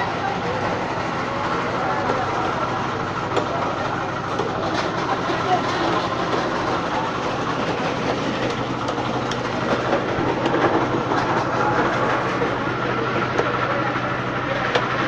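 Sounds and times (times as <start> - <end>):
clatter and knocks: 4.3 - 12.6.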